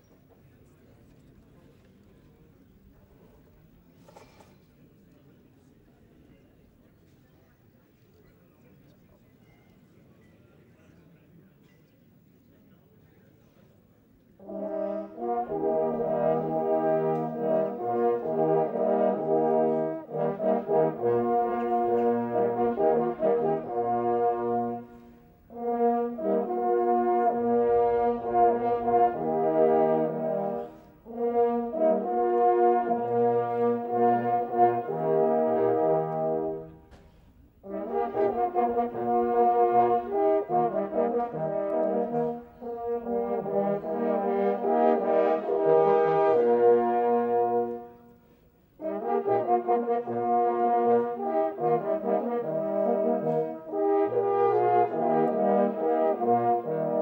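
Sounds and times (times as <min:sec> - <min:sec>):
hunting horns playing chords: 0:14.4 - 0:36.9, 0:37.6 - 0:57.0.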